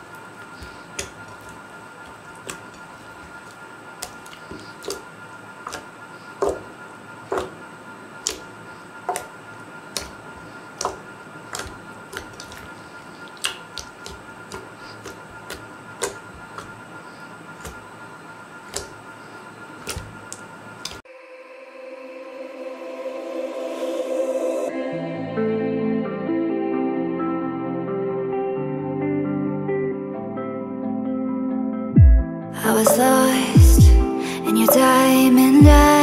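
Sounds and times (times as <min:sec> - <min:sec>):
slime popping and clicking: 0:13.3 - 0:16.8, 0:18.7 - 0:19.0.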